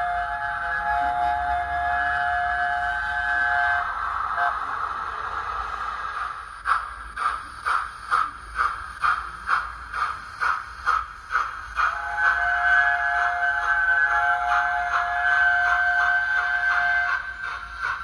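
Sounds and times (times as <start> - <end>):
steam locomotive whistle: 0.0 - 4.7, 11.8 - 18.0
steam exhaust chuffs: 0.0 - 18.0
steam hissing: 0.0 - 18.0.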